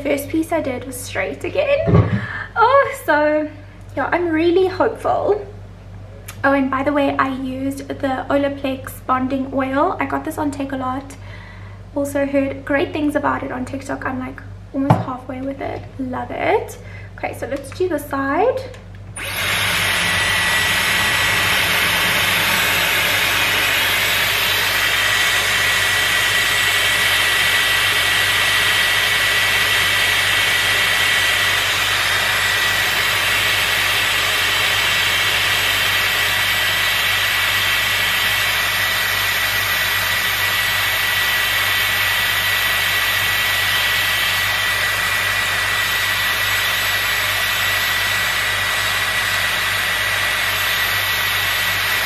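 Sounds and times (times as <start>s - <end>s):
hair styler air rush: 19.1s - 52.0s.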